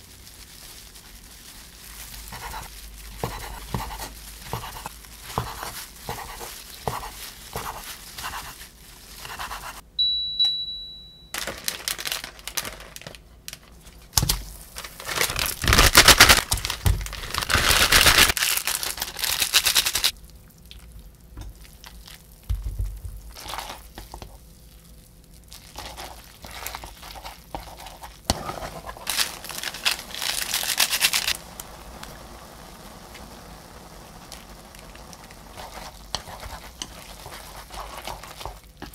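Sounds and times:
crinkling and tearing packets: 0.0 - 9.3, 11.4 - 20.2, 28.8 - 31.7
steady electronic beep: 10.0 - 11.4.

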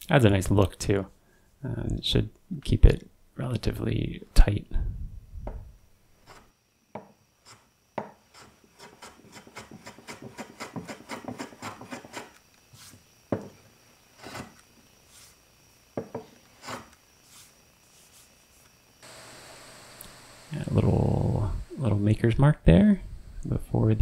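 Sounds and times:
sharp knocks on wood: 6.9 - 7.1, 16.0 - 16.3
block plane scraping wood: 7.4 - 12.4, 14.2 - 15.3, 16.5 - 17.5.

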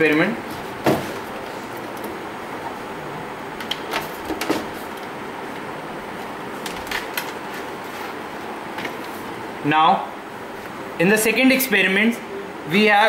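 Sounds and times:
steady background hiss: 0.0 - 13.0.

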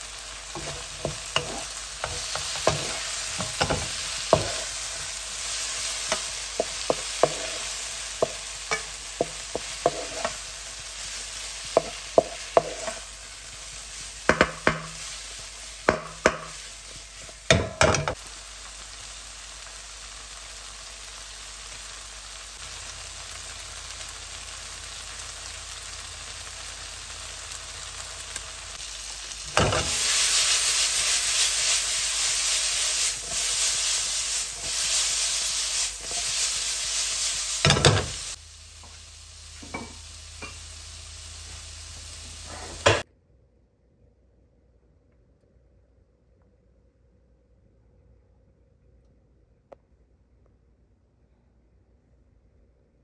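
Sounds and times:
vegetables sizzling in a frying pan: 0.0 - 43.0
spatula knocking and scraping pan: 0.5 - 18.2, 29.5 - 30.2, 37.6 - 39.0, 39.6 - 40.6.

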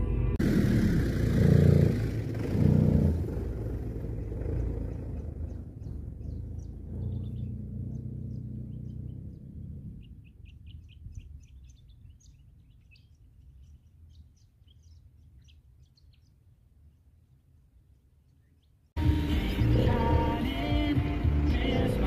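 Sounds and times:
car engine driving away: 0.0 - 10.9, 19.0 - 22.0
birds chirping: 0.1 - 22.0.

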